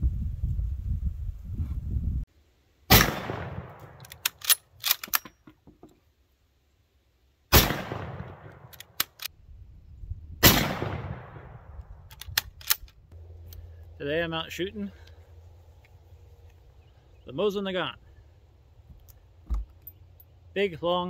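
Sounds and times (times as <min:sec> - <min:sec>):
rifle shots with echo: 0:02.9 - 0:04.0, 0:07.5 - 0:08.7, 0:10.4 - 0:11.8
rifle bolt clicking: 0:03.8 - 0:05.4, 0:12.1 - 0:13.6.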